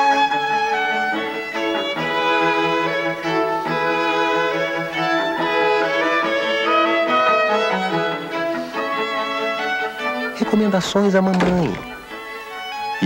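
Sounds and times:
bowed strings film score: 0:00.0 - 0:13.0.

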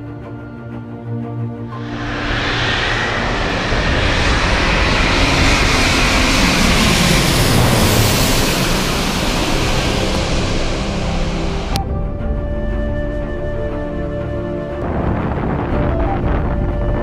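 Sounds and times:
jet airliner engine roar: 0:01.7 - 0:14.8.

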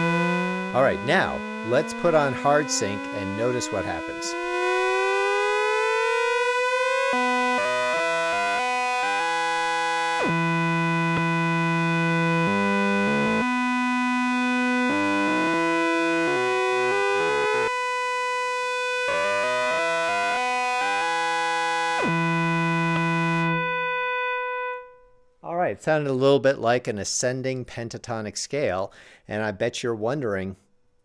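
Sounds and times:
synthesizer oscillators in hard sync: 0:00.0 - 0:24.8.

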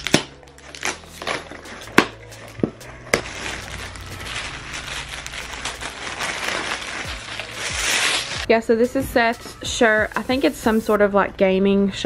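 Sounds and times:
plastic bag crinkling: 0:02.8 - 0:08.5.

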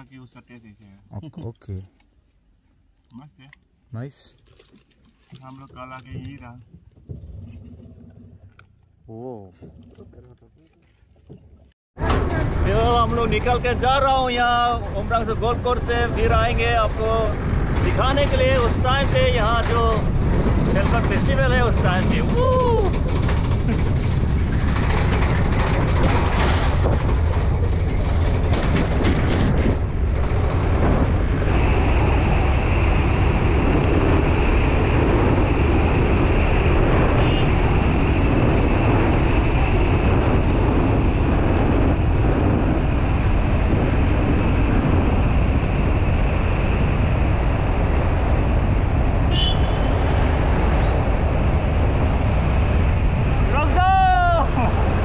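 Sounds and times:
vehicle driving rumble: 0:05.6 - 0:55.0
wind rushing over microphone: 0:11.3 - 0:55.0.

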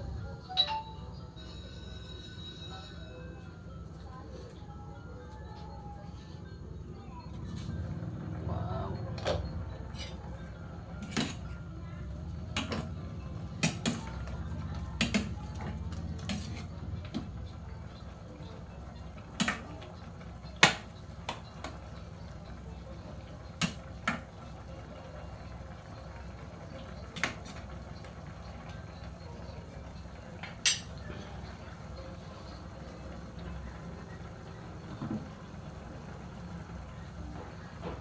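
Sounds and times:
utensil clanking against steel pot: 0:30.4 - 0:31.0.

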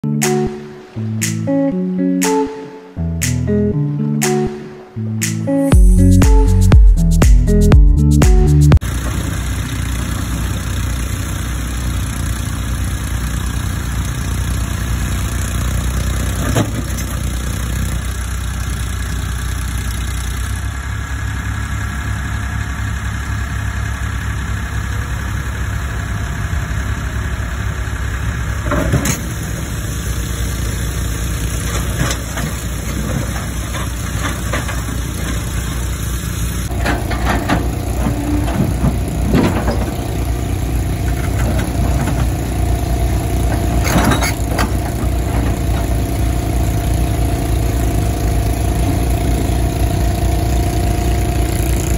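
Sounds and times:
diesel engine running: 0:05.7 - 0:51.9
steady whine: 0:24.5 - 0:51.9.

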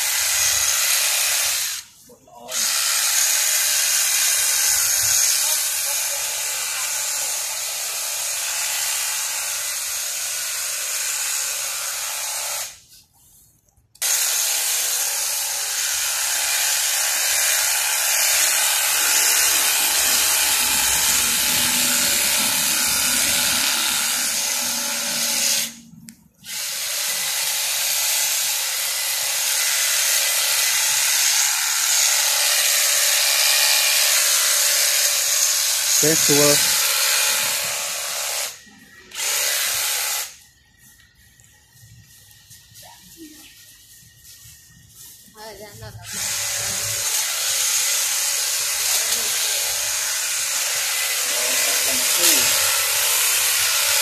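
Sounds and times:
hedge trimmer running: 0:14.0 - 0:25.8, 0:26.4 - 0:40.4, 0:46.1 - 0:54.0.

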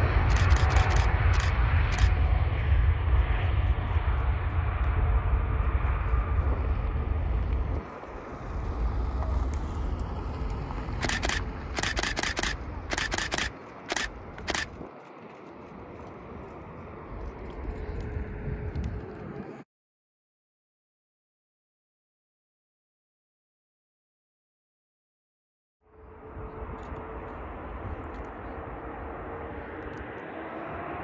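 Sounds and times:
jet engines rumbling: 0:00.0 - 0:19.6, 0:25.9 - 0:31.0
camera shutter clicks: 0:00.3 - 0:02.2, 0:11.0 - 0:14.9.

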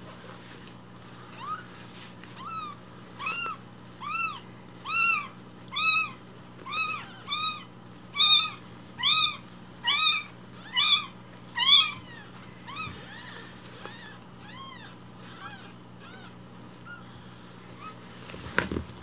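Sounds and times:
newborn kitten mewing: 0:02.4 - 0:17.0.

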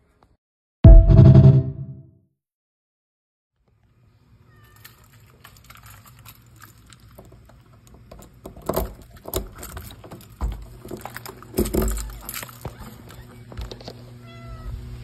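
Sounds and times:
cat meowing: 0:14.2 - 0:14.8.

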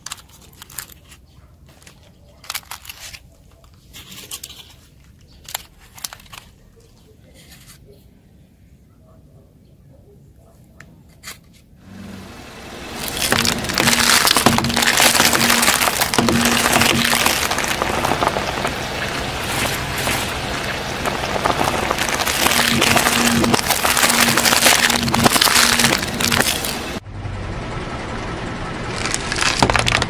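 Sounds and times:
tyre crushing egg shells: 0:00.0 - 0:06.6, 0:12.9 - 0:27.0, 0:29.0 - 0:30.0.

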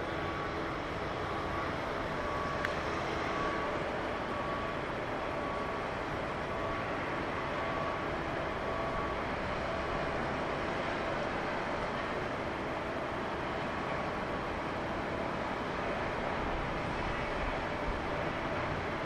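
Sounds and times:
distant shipyard hum and hiss: 0:00.0 - 0:19.0.

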